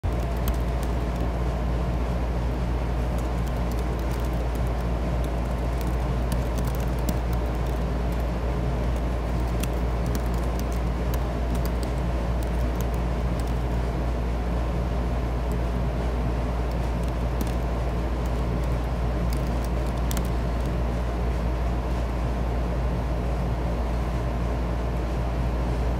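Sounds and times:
computer keyboard typing: 0:00.0 - 0:01.4, 0:03.0 - 0:13.9, 0:16.6 - 0:20.8.

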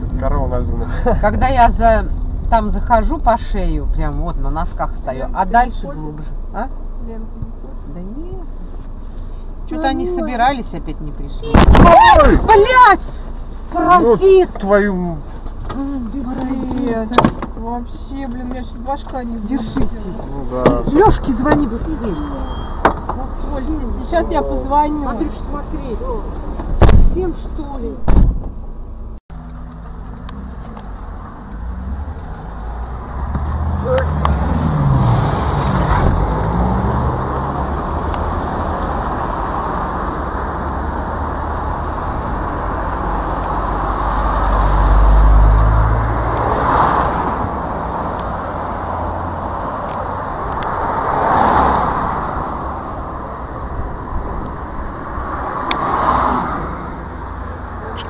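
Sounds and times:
car engines rumbling: 0:00.0 - 0:58.0
vehicles passing: 0:00.0 - 0:58.0.

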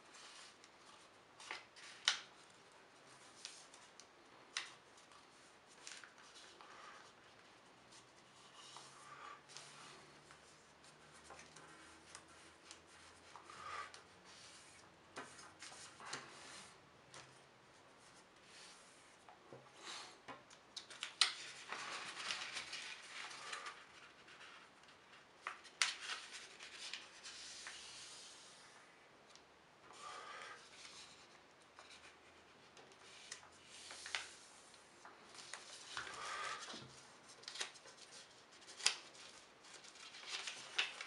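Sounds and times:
paper rustling and scraping: 0:20.9 - 0:28.6, 0:30.2 - 0:41.0.

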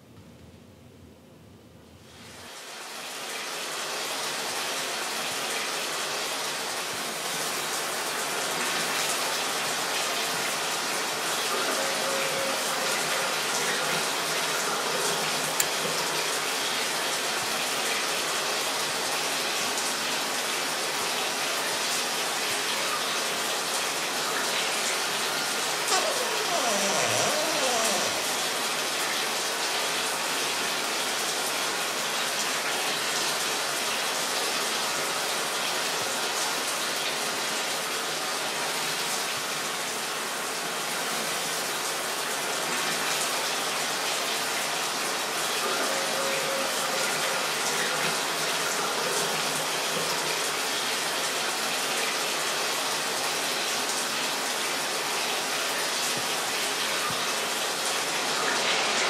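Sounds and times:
short falling squeak: 0:25.9 - 0:28.4.

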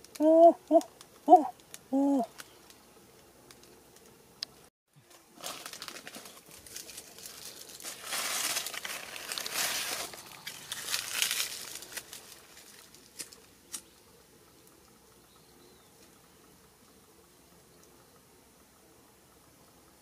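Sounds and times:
dry twigs rustling: 0:05.1 - 0:14.0.

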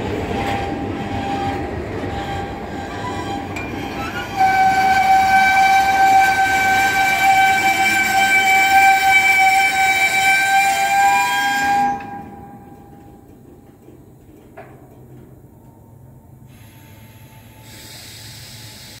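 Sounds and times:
freight cars rolling rumble: 0:00.0 - 0:18.8
high-pitched wheel squeal: 0:01.2 - 0:12.8.

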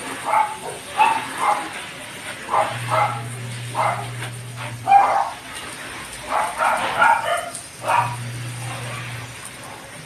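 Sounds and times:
dog barking: 0:00.2 - 0:01.7, 0:02.5 - 0:04.2, 0:04.8 - 0:05.4, 0:06.2 - 0:08.3
steady low hum: 0:02.1 - 0:06.1, 0:07.7 - 0:09.5.

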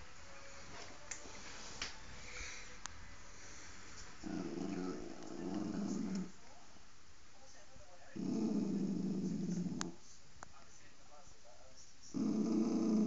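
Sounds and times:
dog growling: 0:04.2 - 0:06.4, 0:08.2 - 0:10.0, 0:12.1 - 0:13.0.

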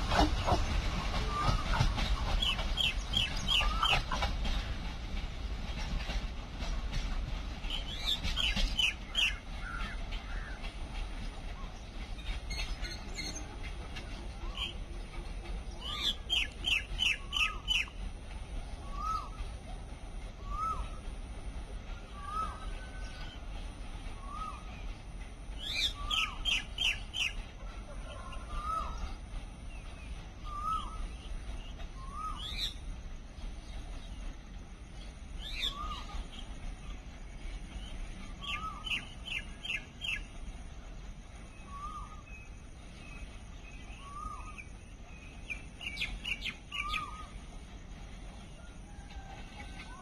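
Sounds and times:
birds chirping: 0:41.3 - 0:47.6.

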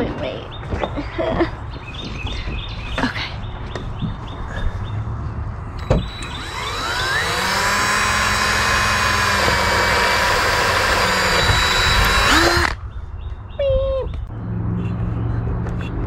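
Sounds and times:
power drill whining: 0:05.8 - 0:12.8.

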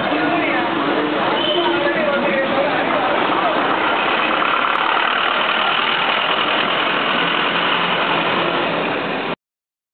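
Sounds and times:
street traffic noise: 0:00.0 - 0:09.4
vehicle engine running nearby: 0:02.0 - 0:09.4.

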